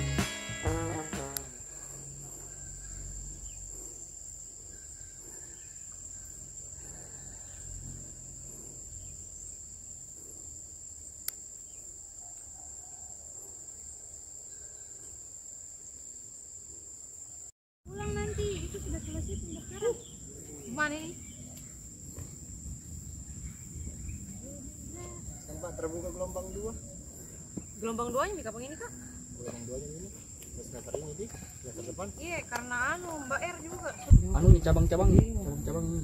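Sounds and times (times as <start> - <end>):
insects chirring: 0.0 - 36.0
low wind rumble: 17.9 - 28.8, 33.3 - 36.0.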